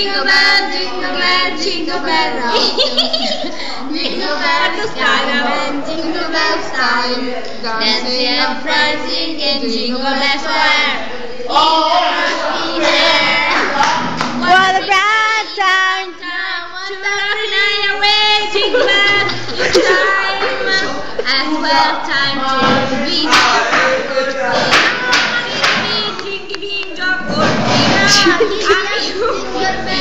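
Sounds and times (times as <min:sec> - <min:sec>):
girls singing together: 0:00.0 - 0:30.0.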